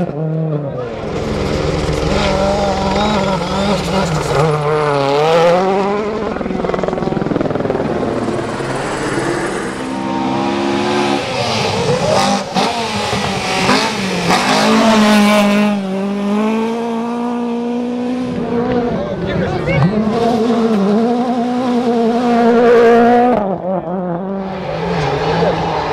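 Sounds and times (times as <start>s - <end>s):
rally cars revving past: 0.0s - 25.9s.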